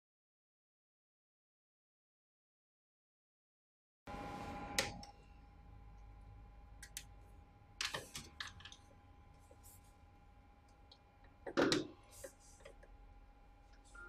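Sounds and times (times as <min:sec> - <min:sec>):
faint electrical hum: 0:04.1 - 0:14.0.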